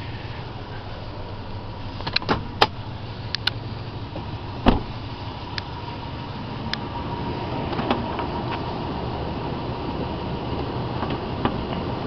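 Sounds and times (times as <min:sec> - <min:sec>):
truck engine idling: 0:00.0 - 0:12.0
loud thump: 0:04.6 - 0:05.0.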